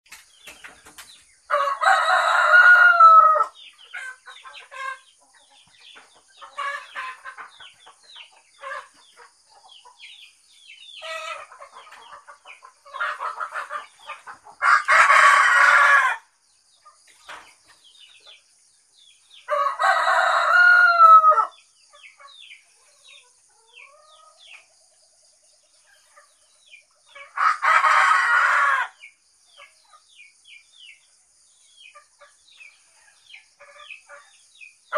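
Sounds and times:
small birds chirping: 0.1 - 34.9
roosters crowing: 1.5 - 5.0, 11.0 - 16.3, 19.4 - 21.6, 27.1 - 29.1.

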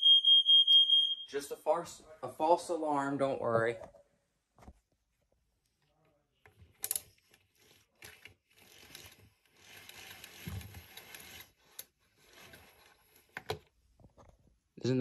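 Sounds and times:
vacuum cord rewind whirring: 6.8 - 13.7.

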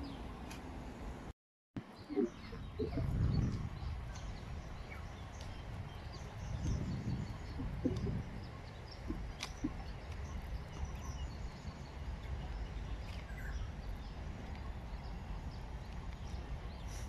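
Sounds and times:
low rumble: 2.3 - 15.9.

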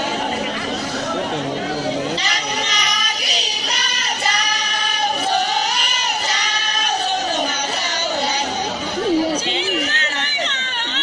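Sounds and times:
women singing long high notes: 2.2 - 11.0.

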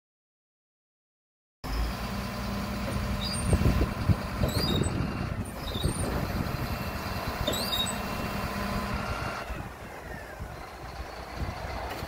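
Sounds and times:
diesel engine running: 1.6 - 12.0
short high squeaks: 3.1 - 3.7, 4.4 - 8.7.

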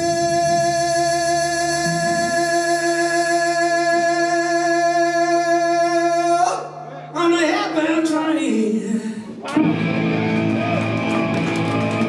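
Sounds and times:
drums: 9.2 - 12.0.

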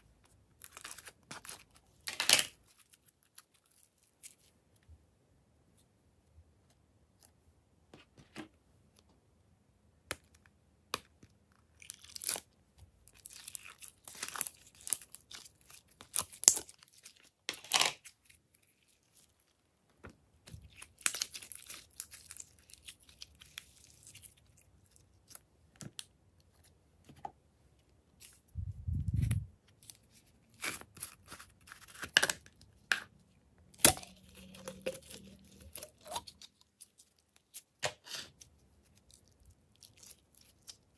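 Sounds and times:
squishy ball crackling and tearing: 11.6 - 19.4, 20.7 - 25.4.

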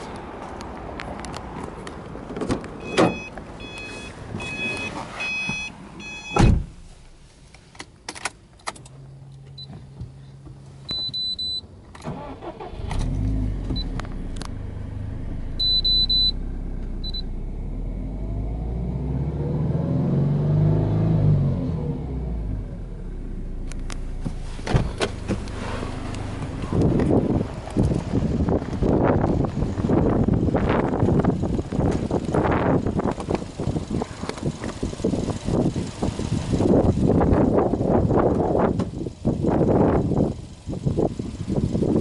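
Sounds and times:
car engine starting and idling: 0.0 - 42.0
car door shutting: 2.3 - 6.9, 24.0 - 27.2
clicks and electronic beeps: 2.8 - 6.5.

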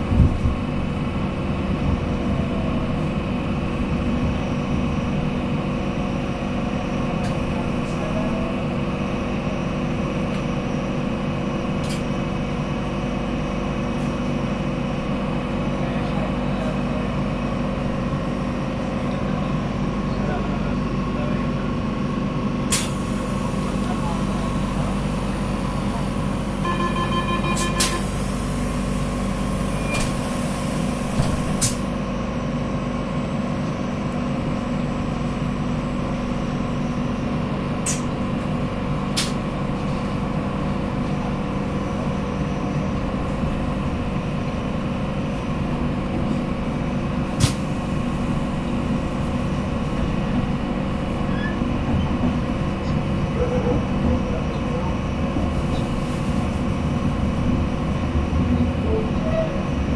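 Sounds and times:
train running hum and rumble: 0.0 - 59.9
short beeps: 26.6 - 28.0.

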